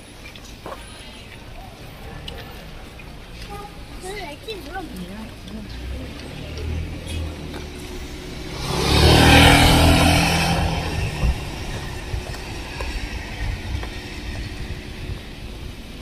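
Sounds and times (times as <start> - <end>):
low street traffic hum: 0.0 - 16.0
car driving past: 5.7 - 15.2.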